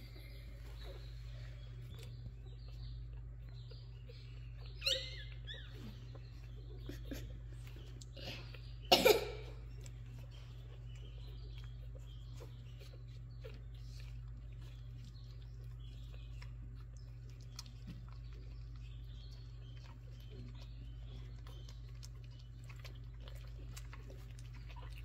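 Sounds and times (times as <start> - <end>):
puppies squeaking: 0.0 - 25.0
steady low hum: 0.0 - 25.0
cough-like burst: 8.9 - 9.6.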